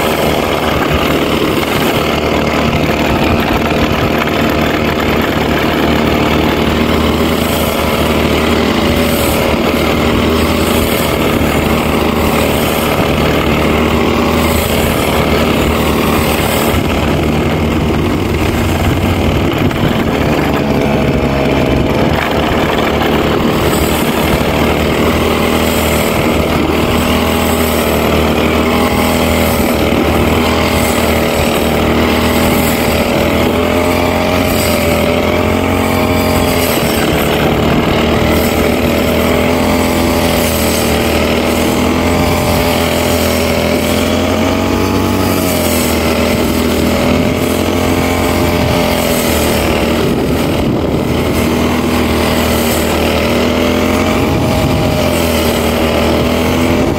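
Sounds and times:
brush cutter engine running: 0:00.0 - 0:56.9.

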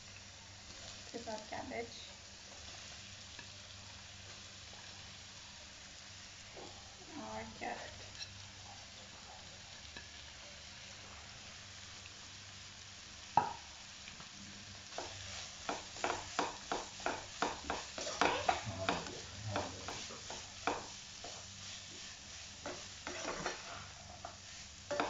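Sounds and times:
oil sizzling: 0:00.0 - 0:25.0
spatula scraping vegetables in wok: 0:14.9 - 0:25.0.

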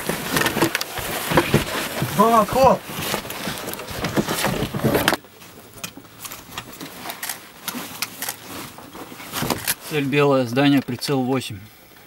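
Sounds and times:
rustling fabric: 0:00.0 - 0:10.7
clicks of buckles and straps: 0:05.8 - 0:09.9.

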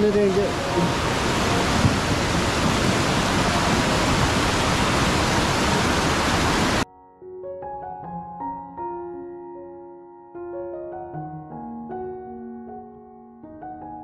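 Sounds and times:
soft piano music: 0:00.0 - 0:04.5, 0:06.8 - 0:14.0
whitewater rushing over boulders: 0:00.0 - 0:06.8.

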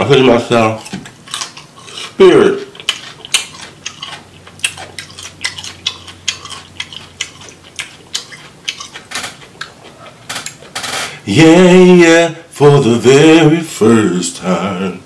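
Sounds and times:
chewing and lip-smacking: 0:00.5 - 0:10.8.

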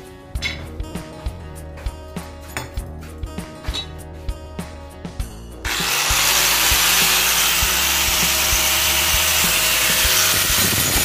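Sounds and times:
power tool grinding metal: 0:05.6 - 0:11.0.

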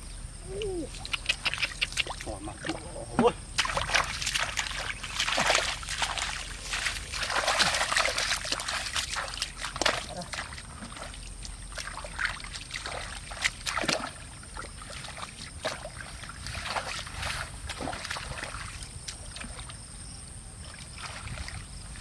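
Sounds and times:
feet splashing through muddy water: 0:00.8 - 0:19.9, 0:20.6 - 0:22.0
hands stirring mud and water: 0:01.1 - 0:18.6.

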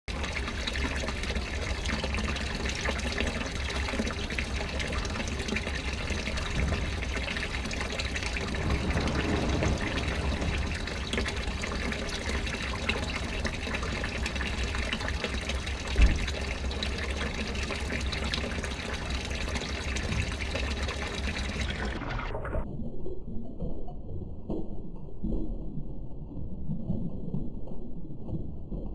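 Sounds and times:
running water into tank: 0:00.1 - 0:22.7
low hum: 0:00.1 - 0:28.9.

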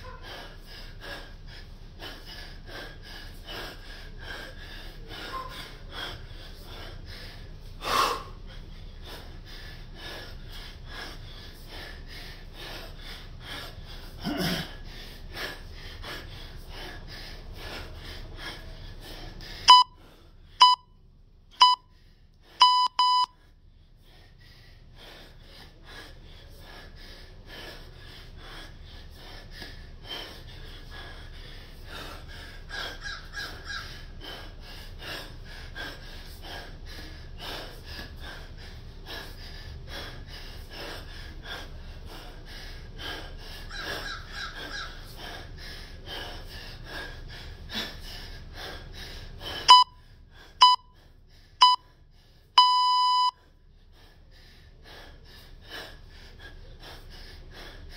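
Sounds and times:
man panting hard: 0:00.0 - 0:20.7, 0:21.3 - 0:57.9
timer beeps: 0:19.7 - 0:20.0, 0:20.6 - 0:20.9, 0:21.6 - 0:21.9, 0:22.6 - 0:23.4, 0:49.7 - 0:50.0, 0:50.6 - 0:51.0, 0:51.6 - 0:51.9, 0:52.6 - 0:53.4.

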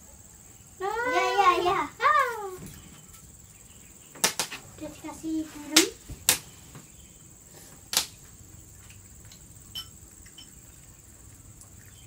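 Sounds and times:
spoon clinking against bowl: 0:09.7 - 0:10.6.

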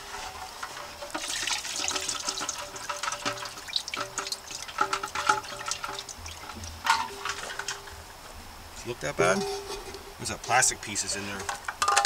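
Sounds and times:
gasoline splashing into bucket: 0:00.0 - 0:08.0.

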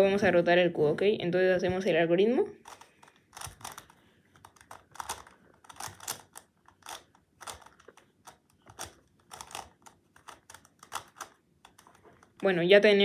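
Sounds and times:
plastic puzzle clicking: 0:02.6 - 0:12.4.

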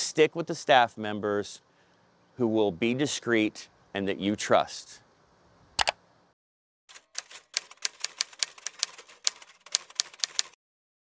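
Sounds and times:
typewriter keys clacking: 0:06.9 - 0:10.6.

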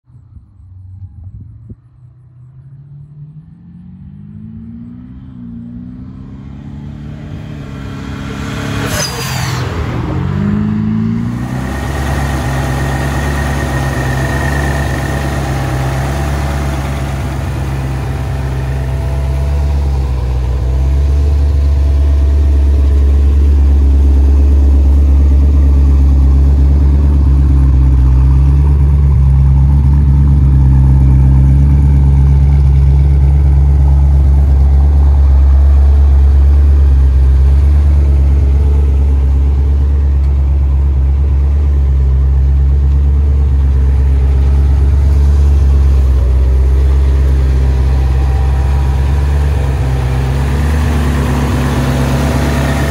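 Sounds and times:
car engine approaching: 0:00.1 - 0:52.9
rush of noise: 0:06.8 - 0:20.6
deep engine idle: 0:11.3 - 0:52.9.

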